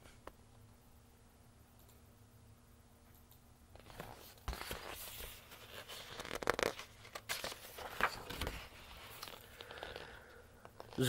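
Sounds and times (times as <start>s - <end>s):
book paper rustling: 3.8s - 11.0s.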